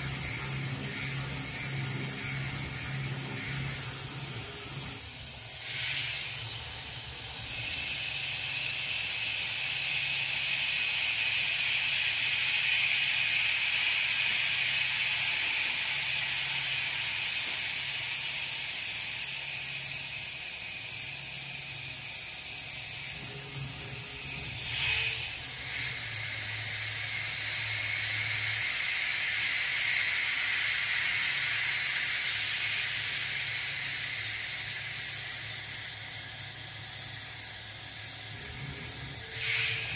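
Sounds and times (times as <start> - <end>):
high cutting whine: 0.0 - 8.8
coolant nozzle hiss: 0.0 - 39.9.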